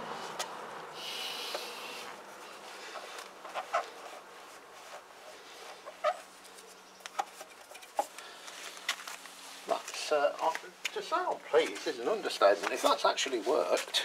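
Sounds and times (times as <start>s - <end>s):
rag rubbing squeaks on metal: 5.8s - 6.3s.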